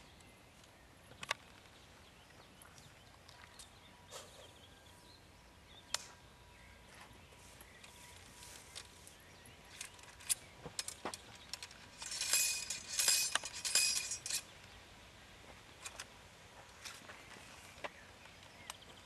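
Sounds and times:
musket clicks and clinks: 9.7 - 14.5
ramrod scraping metal: 9.8 - 14.5.

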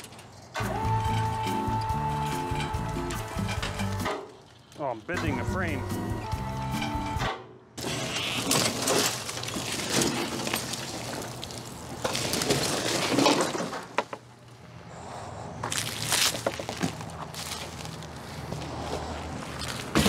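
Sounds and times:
furniture frame clattering on pavement: 7.8 - 14.3, 19.7 - 20.0.

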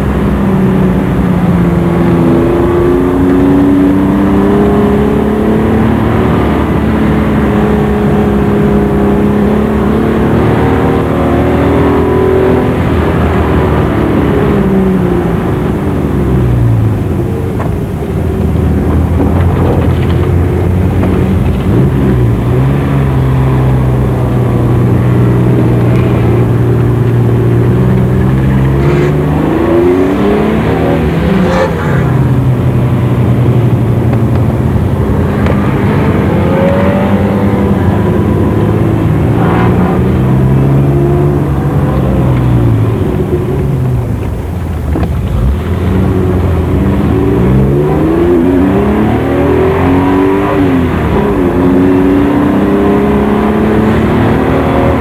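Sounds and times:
rally car engine revving: 0.0 - 55.0.

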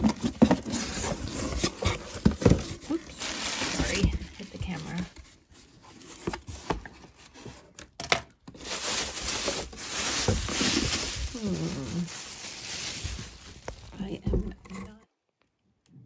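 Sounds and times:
plastic bag crinkling: 0.0 - 6.4, 8.5 - 14.5.

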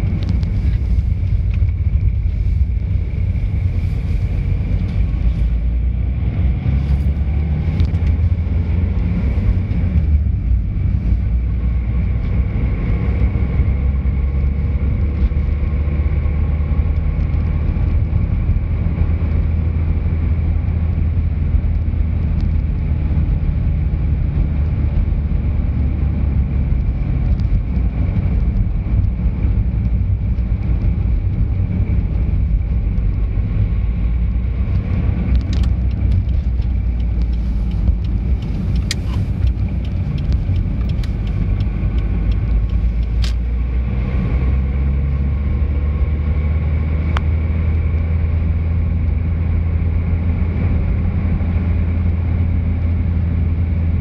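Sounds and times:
car interior road rumble: 0.0 - 54.0
sharp clicks: 35.3 - 43.5.

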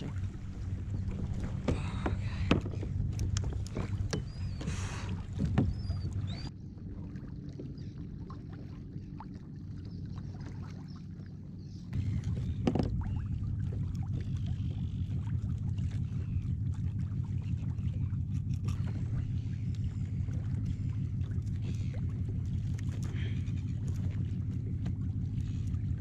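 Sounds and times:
water and wind against hull: 0.0 - 26.0
gear knocking on plastic hull: 12.6 - 13.1.

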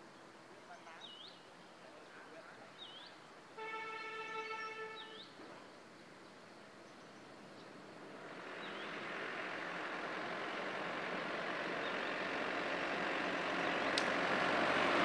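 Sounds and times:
bird chirping: 0.0 - 3.3, 3.9 - 9.2, 13.2 - 14.1
vehicle horn: 3.6 - 5.3
truck approaching: 7.0 - 15.0.

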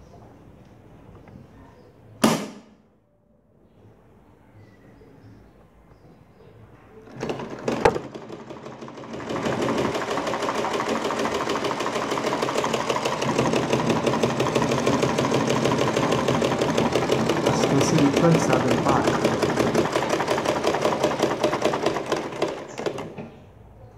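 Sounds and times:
treadle sewing machine ticking: 7.1 - 23.2.

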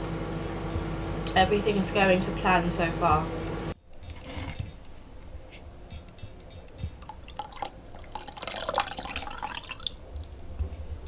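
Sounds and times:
liquid pouring and splashing: 7.0 - 10.4.

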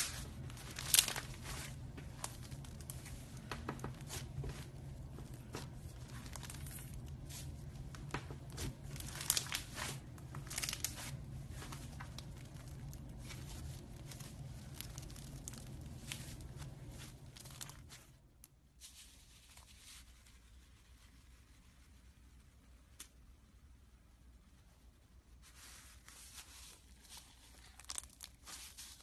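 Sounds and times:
slime crackling and popping: 0.1 - 4.2, 5.9 - 16.6, 27.0 - 29.0.

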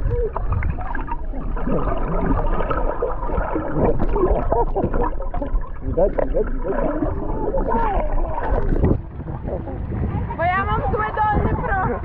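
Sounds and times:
underwater gurgling and bubbling: 0.0 - 10.3
steady low rumble: 0.0 - 12.0.

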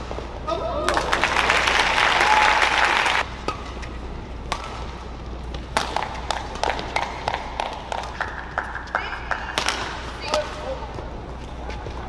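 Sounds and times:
crowd applauding: 0.9 - 3.2
racket hitting shuttlecock: 3.3 - 10.8.

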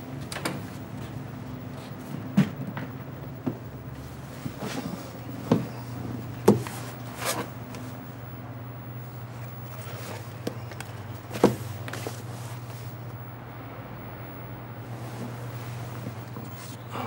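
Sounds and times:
low hum: 0.8 - 17.0
book rustling: 9.3 - 13.2.

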